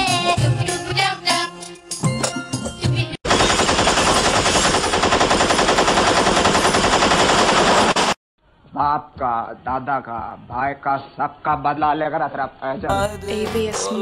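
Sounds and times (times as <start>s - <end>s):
machine-gun fire: 3.2s - 8.2s
song playing: 12.9s - 14.0s.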